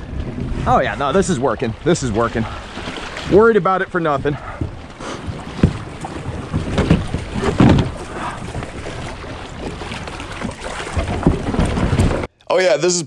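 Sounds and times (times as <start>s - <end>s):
waves sloshing against rocks: 0.0s - 12.3s
kayak hull knocking on rocks: 4.2s - 12.3s.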